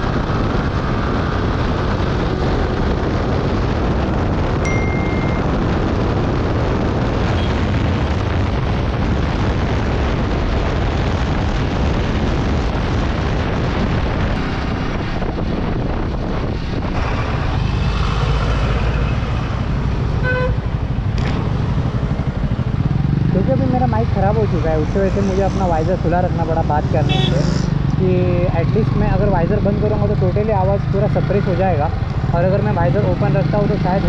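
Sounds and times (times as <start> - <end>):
heavy wind noise: 0.0 - 34.0
short pitched beep: 4.6 - 5.6
motorcycle engine running: 18.5 - 34.0.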